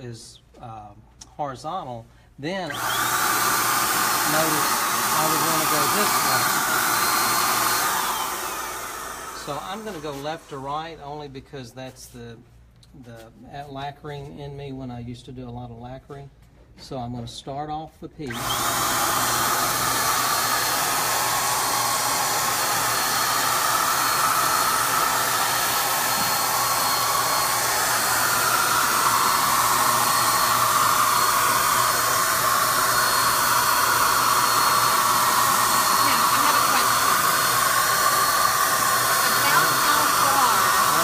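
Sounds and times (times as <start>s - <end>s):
electric paint sprayer whooshing hiss: 2.7s - 10.7s, 18.3s - 41.0s.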